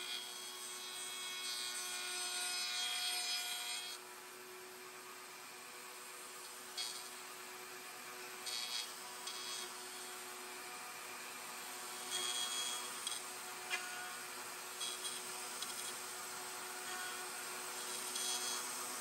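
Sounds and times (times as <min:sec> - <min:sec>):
router bit cutting wood: 0:00.0 - 0:04.0, 0:05.4 - 0:19.0
wood router whining: 0:00.0 - 0:19.0.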